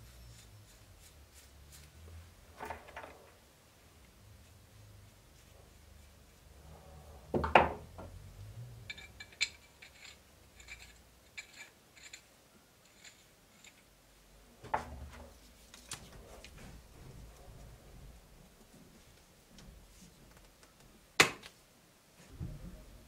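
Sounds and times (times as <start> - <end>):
light metallic clicks and scrapes: 8.8 - 14.0.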